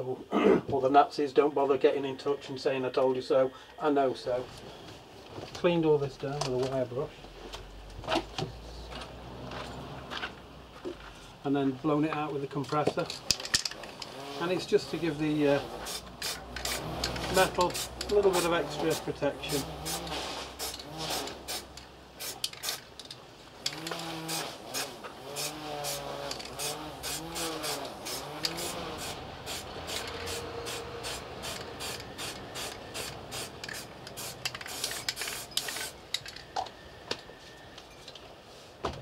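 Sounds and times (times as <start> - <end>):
aerosol spray can hissing: 15.8 - 22.8, 23.8 - 36.0.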